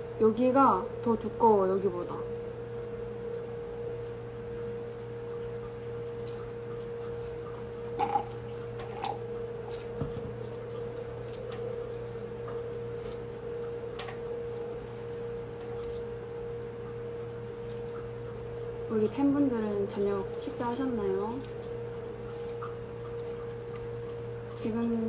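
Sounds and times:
steady hum: 0:00.0 - 0:25.0.

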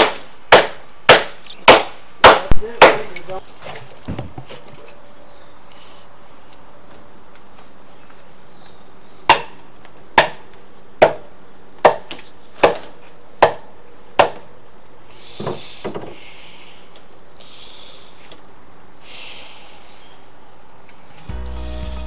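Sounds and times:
hammer striking timber: 0:00.0 - 0:03.2, 0:10.2 - 0:14.4.

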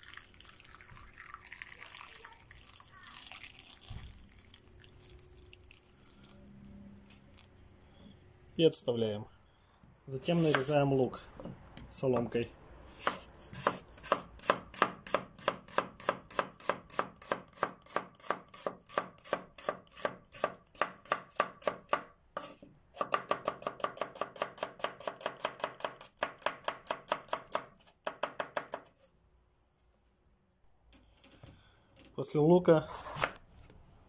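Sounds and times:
knife chopping on cutting board: 0:10.4 - 0:10.7, 0:13.0 - 0:18.4.

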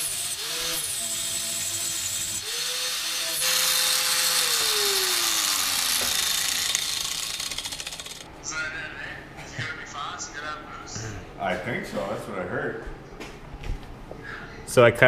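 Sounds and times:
angle grinder cutting metal pipe: 0:00.0 - 0:08.3.

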